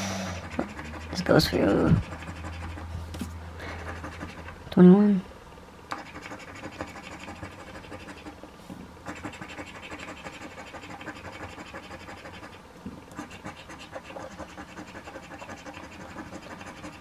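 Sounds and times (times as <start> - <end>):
coin scratching lottery ticket: 0.4 - 2.9, 6.0 - 8.4, 9.1 - 12.6, 13.2 - 17.0.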